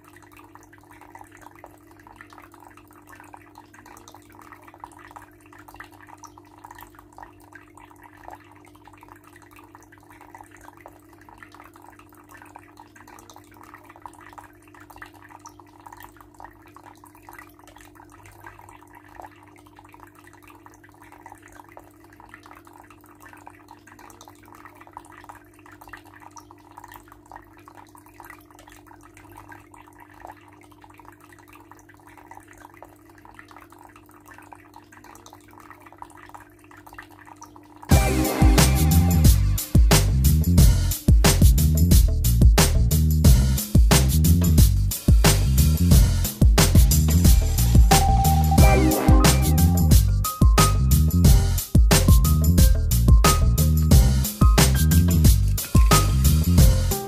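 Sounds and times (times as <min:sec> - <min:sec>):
fountain water trickling: 0:00.0 - 0:57.0
water dripping: 0:00.0 - 0:57.0.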